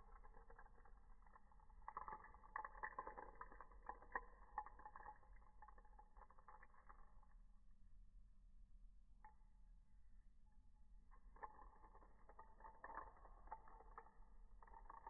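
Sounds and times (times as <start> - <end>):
glass bottle clicking and rustling: 0.0 - 7.2, 11.1 - 15.0.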